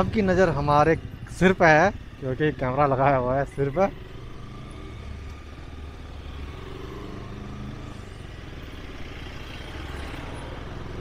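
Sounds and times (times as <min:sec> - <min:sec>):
motorcycle engine running: 0:00.0 - 0:11.0
road and wind noise: 0:00.0 - 0:11.0.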